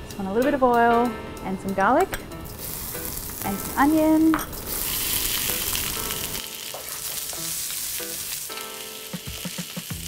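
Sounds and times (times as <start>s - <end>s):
garlic and onion sizzling in oil: 2.4s - 10.0s.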